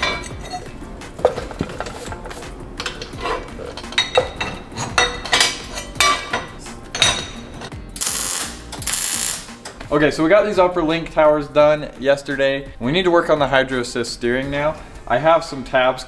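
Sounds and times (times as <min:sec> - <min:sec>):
welder crackle: 0:08.0 - 0:09.6.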